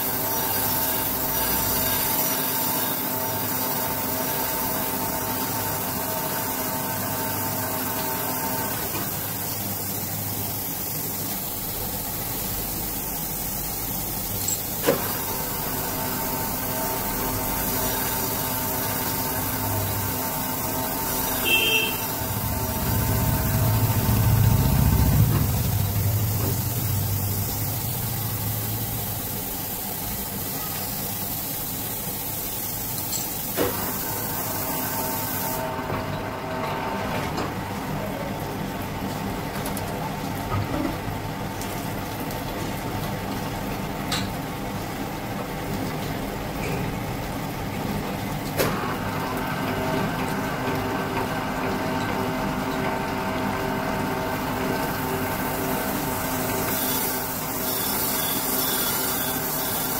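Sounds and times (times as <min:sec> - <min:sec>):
machine motors humming: 0:14.4 - 0:29.4
low rumble: 0:22.3 - 0:27.6.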